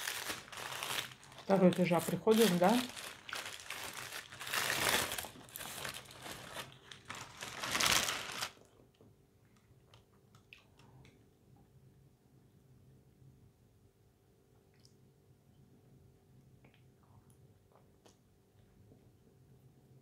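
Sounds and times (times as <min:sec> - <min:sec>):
paper wrapper crinkling: 0:00.0 - 0:08.7.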